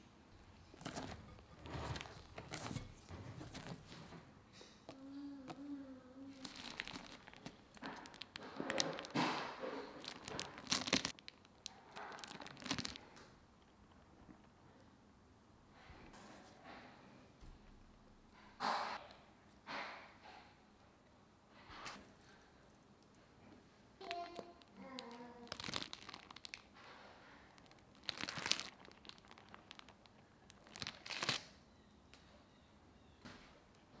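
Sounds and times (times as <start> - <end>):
plastic piping bag crinkling: 0.6 - 3.9, 6.3 - 14.5, 24.0 - 31.8.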